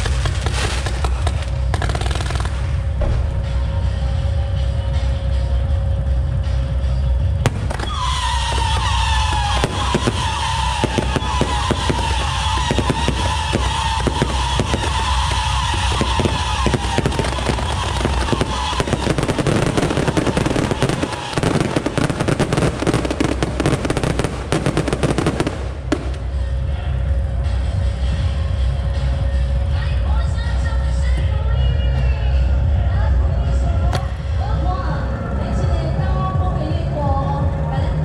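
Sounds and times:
firework bangs: 0.0s - 3.5s, 7.4s - 26.6s
firework crackling: 0.0s - 3.6s, 7.4s - 26.7s
firework whistles: 7.5s - 26.4s.

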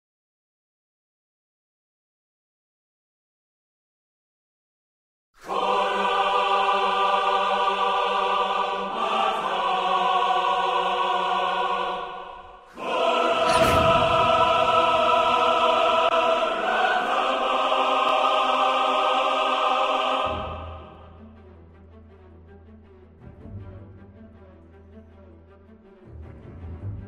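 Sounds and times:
choral trailer music: 5.4s - 27.0s
single orchestral hit: 12.8s - 17.2s.

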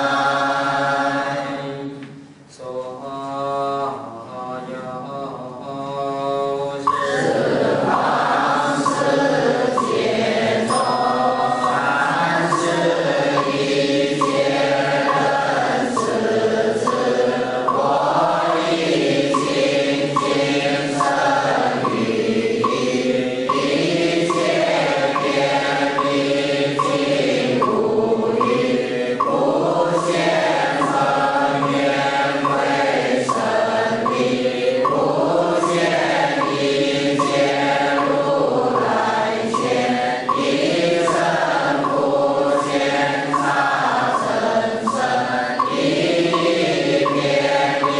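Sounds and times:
group chanting in unison: 0.0s - 47.9s
wooden fish knocking: 11.6s - 47.9s.

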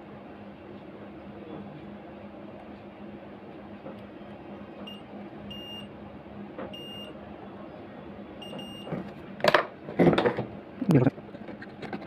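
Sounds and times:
steady low hum: 0.0s - 12.0s
multimeter continuity beeps: 4.8s - 5.9s, 6.7s - 7.2s, 8.4s - 8.9s.

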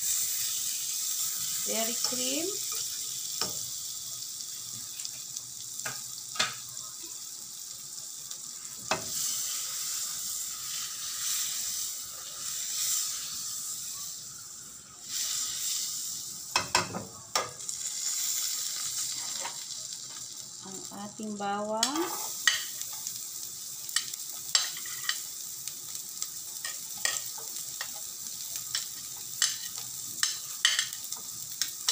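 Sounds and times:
butter sizzling in a pan: 0.0s - 31.9s.

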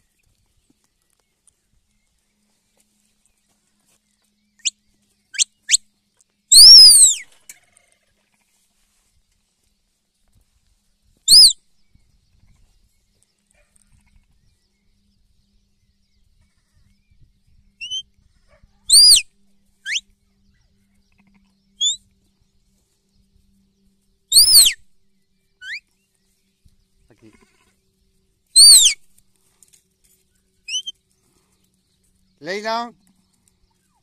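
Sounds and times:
faint rising chirps: 21.8s - 22.0s
lamb bleating: 27.2s - 27.8s.

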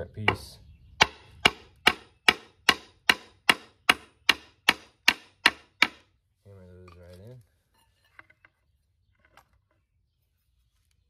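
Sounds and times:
hammering on wood block: 1.0s - 6.1s.

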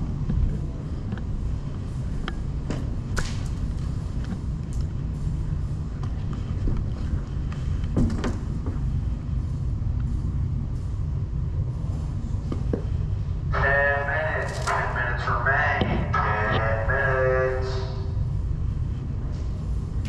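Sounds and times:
low rumble of camera movement: 0.0s - 17.1s
person speaking: 13.5s - 18.1s.

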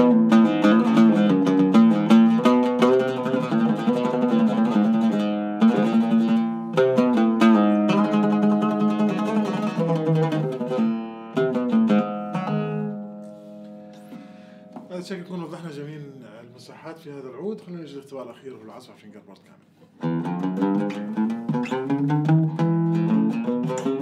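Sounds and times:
oud plucked with a pick: 0.0s - 14.9s, 19.9s - 24.0s.

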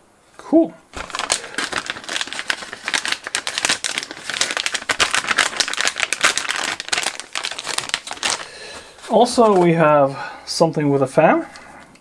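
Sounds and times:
plastic bag crinkling: 0.9s - 10.0s.

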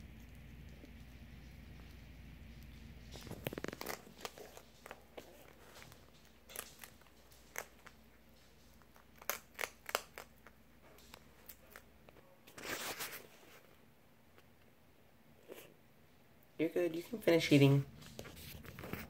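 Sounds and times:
animal crunching kibble: 0.0s - 13.7s.

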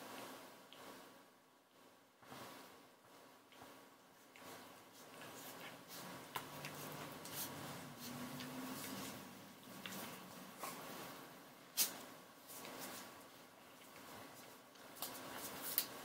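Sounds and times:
faint rustling on towel: 0.0s - 16.0s.

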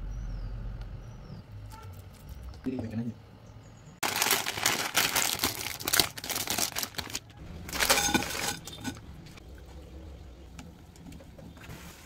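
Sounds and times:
plastic packet crinkling: 4.0s - 9.0s.

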